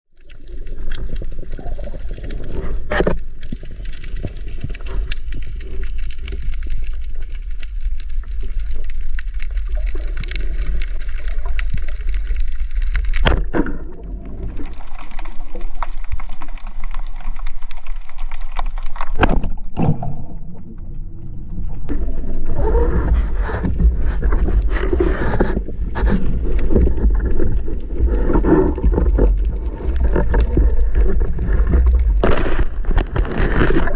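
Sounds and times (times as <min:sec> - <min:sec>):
underwater rumble of moving water: 0:00.1 - 0:33.9.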